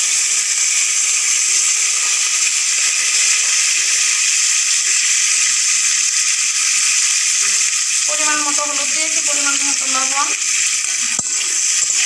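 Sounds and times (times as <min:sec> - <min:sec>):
potato slices sizzling in oil: 0:00.0 - 0:12.0.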